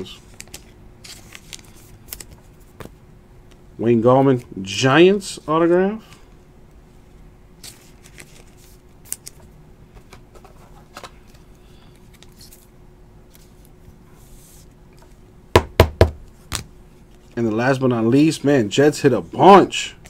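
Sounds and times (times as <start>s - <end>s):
faint steady hum: 0.0s - 20.0s
trading cards clicking and rustling: 0.2s - 3.0s, 7.6s - 12.7s.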